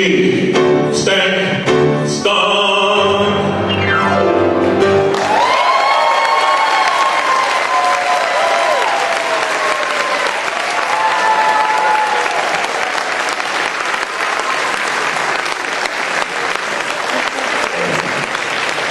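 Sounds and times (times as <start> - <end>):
audience applauding: 5.0 - 18.9.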